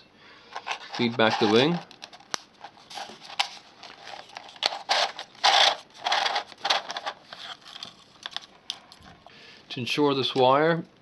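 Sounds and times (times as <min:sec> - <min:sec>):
plastic and cardboard crinkling: 0:00.5 - 0:09.3.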